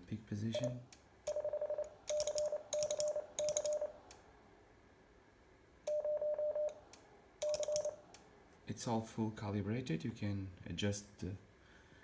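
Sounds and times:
morse code sidetone beeps: 0:01.3 - 0:04.0, 0:05.9 - 0:06.7.

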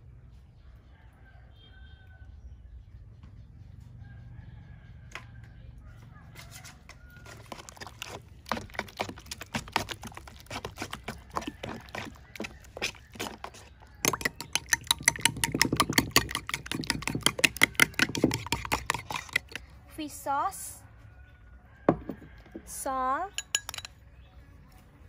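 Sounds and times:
fork beating eggs in glass bowl: 0:07.2 - 0:19.6
spoon scraping a metal bowl: 0:07.2 - 0:19.6.

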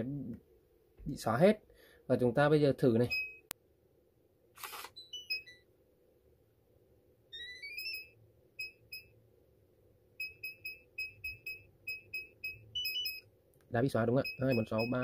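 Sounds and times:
keypad key beeps: 0:10.2 - 0:13.2, 0:14.2 - 0:15.0.

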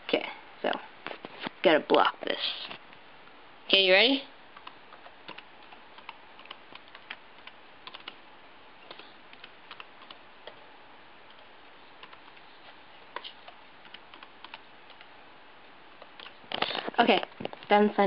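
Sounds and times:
keyboard keystrokes: 0:04.6 - 0:08.2.

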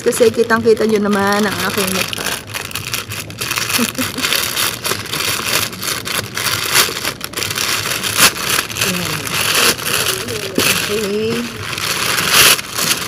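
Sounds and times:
plastic pouch crinkling: 0:00.0 - 0:13.0.

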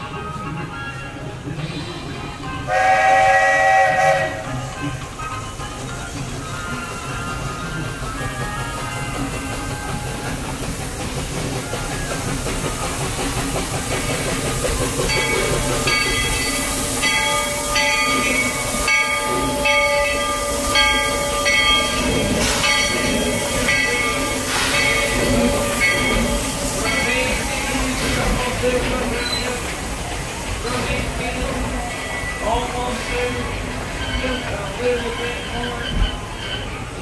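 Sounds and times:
steam locomotive passing: 0:00.0 - 0:37.0
steam hiss: 0:00.2 - 0:37.0
locomotive bell ringing: 0:11.1 - 0:37.0.

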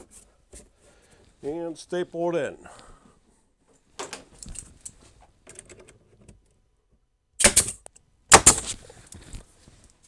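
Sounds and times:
pneumatic stapler shot: 0:07.4 - 0:08.7.

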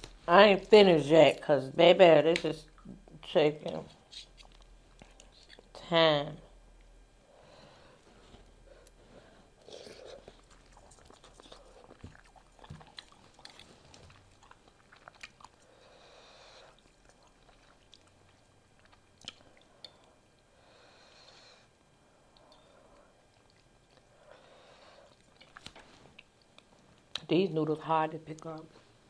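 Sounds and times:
faint chewing: 0:03.7 - 0:05.7, 0:07.7 - 0:20.5, 0:22.3 - 0:27.3.

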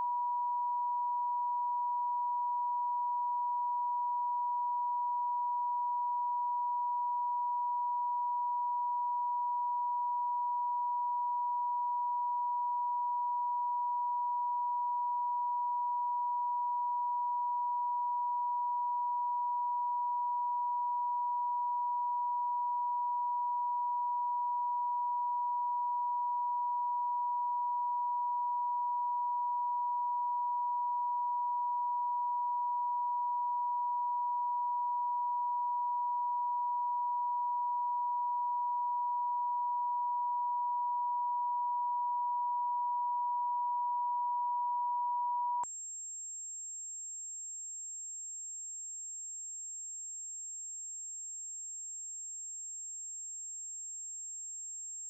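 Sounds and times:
pure sine tone: 0:00.0 - 0:55.0.

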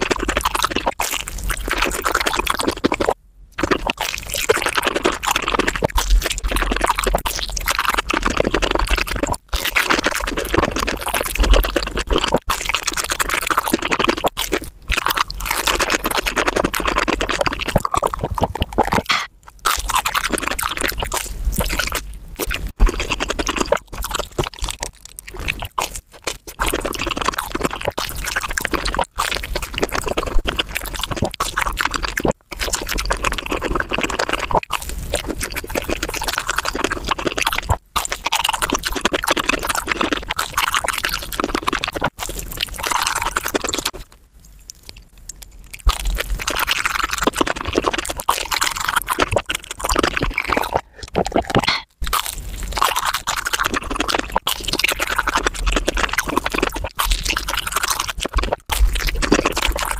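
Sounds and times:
crunching and chewing food: 0:00.0 - 0:59.9.

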